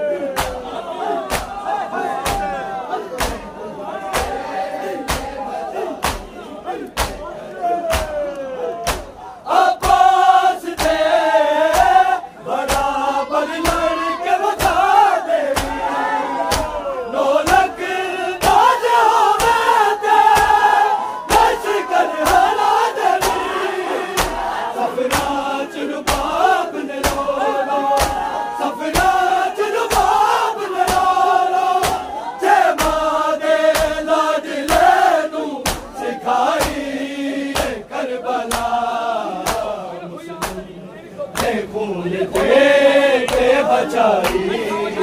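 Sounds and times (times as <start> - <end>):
men chanting in unison: 0.0 - 45.0
hands slapping chests: 0.3 - 1.6, 2.2 - 2.6, 3.2 - 3.5, 4.1 - 5.4, 6.0 - 9.2, 9.8 - 11.1, 11.7 - 12.0, 12.7 - 13.0, 14.6 - 14.9, 15.5 - 16.8, 18.4 - 18.8, 19.4 - 19.7, 20.3 - 20.7, 23.2 - 23.5, 24.2 - 25.4, 26.0 - 26.4, 27.0 - 27.3, 28.0 - 28.3, 29.8 - 30.2, 30.8 - 31.2, 31.8 - 32.1, 32.7 - 34.0, 34.6 - 35.0, 35.6 - 36.9, 37.5 - 37.8, 38.5 - 38.8, 39.4 - 39.7, 40.4 - 40.6, 43.3 - 43.6, 44.2 - 44.5.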